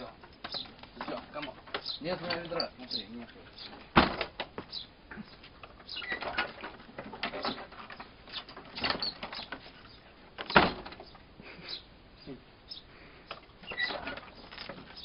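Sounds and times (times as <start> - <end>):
dog paws scrabbling: 0.0 - 11.1
wooden door knocking and scraping: 3.7 - 4.7
door banging shut: 3.8 - 4.5, 10.4 - 11.1.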